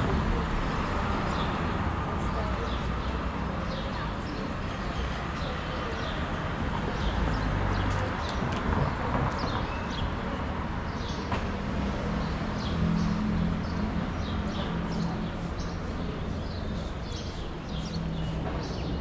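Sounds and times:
city street noise: 0.0s - 19.0s
small birds chirping: 12.2s - 19.0s.

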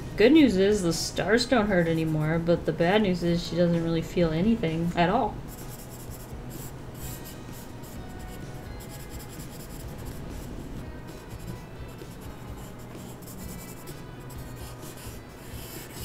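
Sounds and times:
faint music: 0.0s - 16.0s
pencil scratching on paper: 5.5s - 10.2s, 12.2s - 16.0s.

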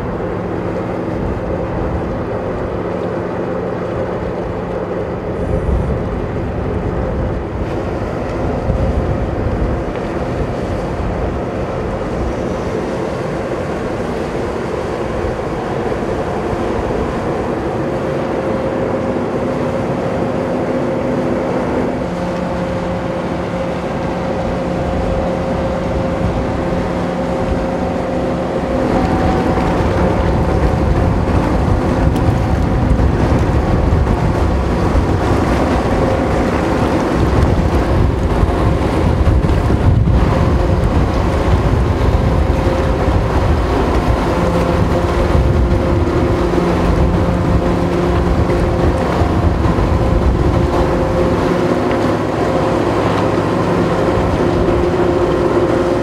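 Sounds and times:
propeller water rushing: 0.0s - 56.0s
ship engines humming: 0.0s - 56.0s.

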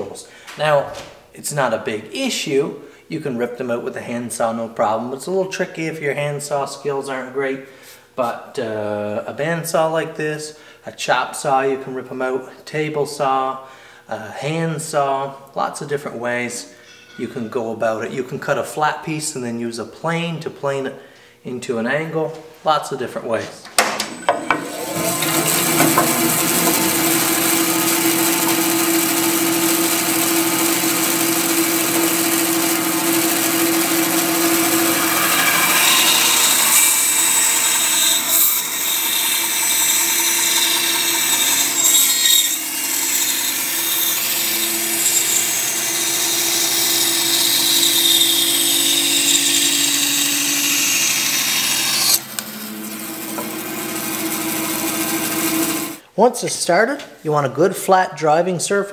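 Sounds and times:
motor hum: 24.2s - 56.0s
bandsaw cutting wood: 24.3s - 56.0s.

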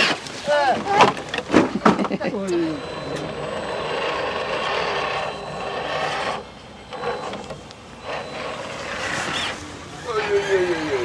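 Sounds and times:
toy truck scraping over sand: 8.1s - 11.0s.

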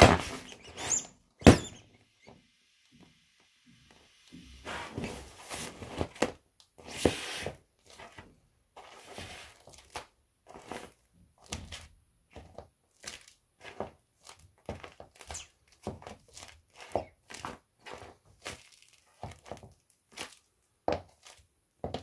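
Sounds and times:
air rushing out of inflatable: 4.0s - 5.8s
vinyl crinkling and rustling: 4.9s - 6.5s, 7.8s - 21.5s.

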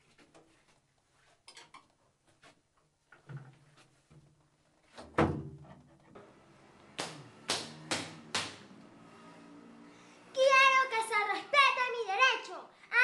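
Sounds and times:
door slamming shut: 5.1s - 5.6s.

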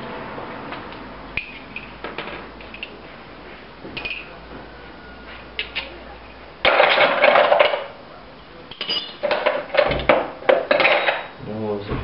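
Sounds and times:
metal tools clinking: 8.7s - 9.8s.

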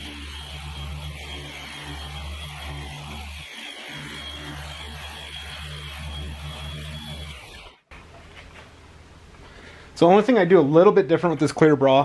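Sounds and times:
machine polisher running: 0.0s - 7.8s.

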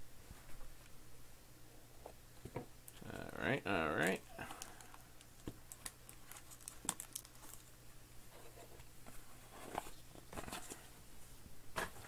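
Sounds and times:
faint steady hum: 0.0s - 12.0s
cards rustling and clicking: 4.0s - 7.7s.

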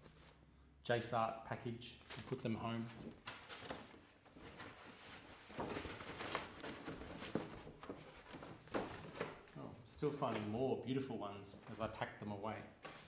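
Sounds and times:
paper rustling: 2.0s - 9.5s
paper crinkles: 2.1s - 9.2s.

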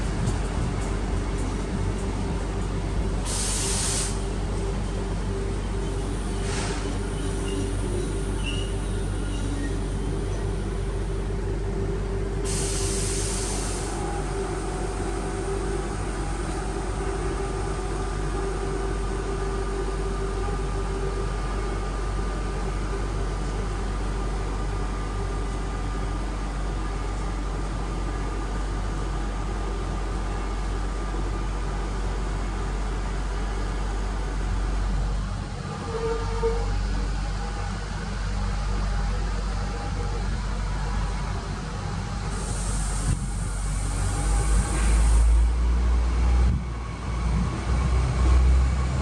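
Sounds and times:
train coaches rolling past: 0.0s - 49.0s
air hiss: 3.2s - 4.3s, 12.4s - 14.1s, 42.3s - 45.5s.

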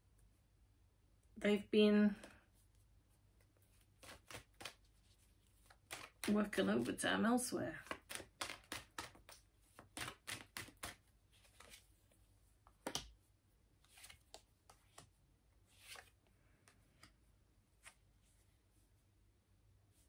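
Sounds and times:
cards being shuffled: 3.4s - 7.0s, 7.8s - 11.9s, 12.6s - 13.2s, 13.8s - 15.1s, 15.7s - 17.2s, 17.8s - 18.1s.

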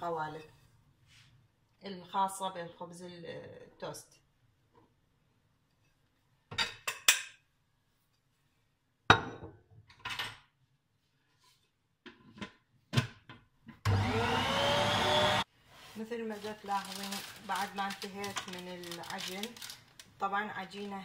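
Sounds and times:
stand mixer motor whining: 13.9s - 15.4s.

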